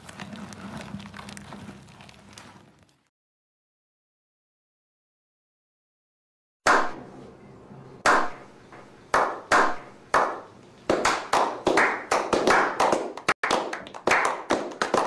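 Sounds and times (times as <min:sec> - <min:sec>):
group hand clapping with echo: 0:06.7 - 0:07.0, 0:08.0 - 0:08.4, 0:09.1 - 0:15.0.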